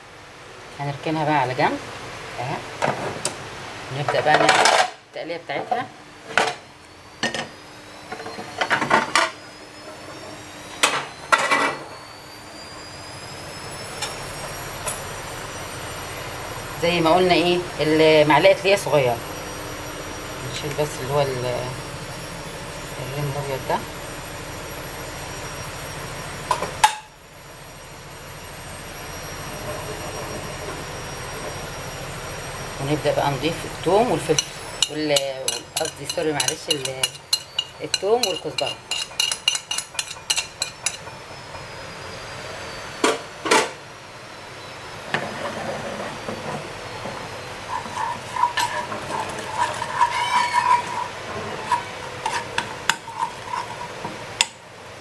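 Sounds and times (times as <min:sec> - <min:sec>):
kitchen background noise: 0:00.6 - 0:12.1, 0:13.3 - 0:27.2, 0:29.1 - 0:43.8, 0:44.6 - 0:55.0
garlic sizzling in fat: 0:07.0 - 0:43.4, 0:44.2 - 0:55.0
spoon scraping a pan: 0:34.2 - 0:41.1, 0:47.5 - 0:54.2.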